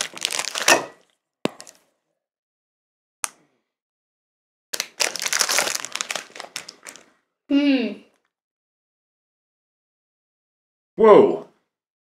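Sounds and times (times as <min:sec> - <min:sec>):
wrapper crinkling: 0:00.0 - 0:01.0, 0:04.8 - 0:07.2.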